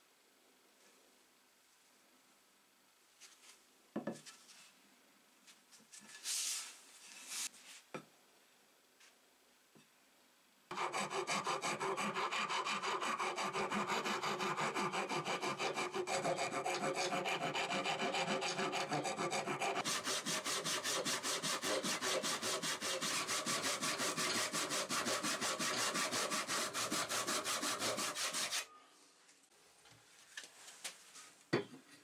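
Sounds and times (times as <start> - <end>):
file rasping on wood: 10.7 - 28.6
hand saw cutting wood: 10.7 - 28.7.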